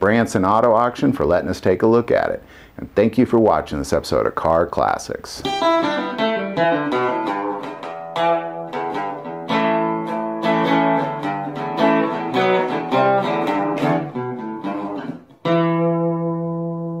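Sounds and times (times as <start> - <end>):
guitar chord ringing: 5.4 - 17.0
plucked guitar notes: 5.4 - 17.0.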